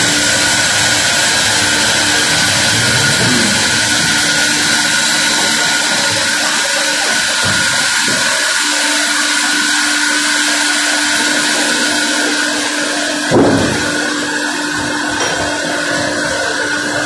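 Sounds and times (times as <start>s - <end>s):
band sawmill sawing log: 0.0s - 17.0s.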